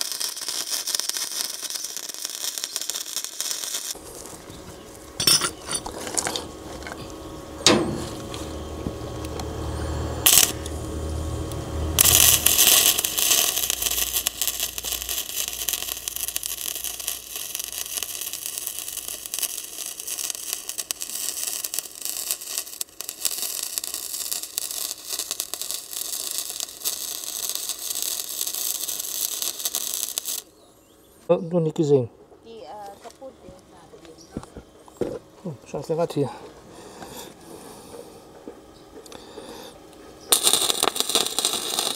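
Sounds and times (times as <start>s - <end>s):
welding arc sizzling: 0.0s - 30.5s, 39.0s - 41.9s.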